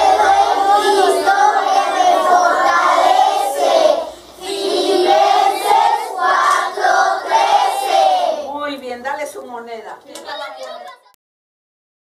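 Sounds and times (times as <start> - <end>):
children singing in unison: 0.0 - 8.5.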